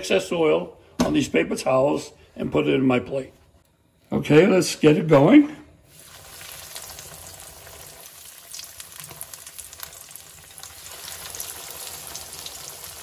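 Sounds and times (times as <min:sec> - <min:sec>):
cutlets sizzling in oil: 0:05.9 - 0:13.0.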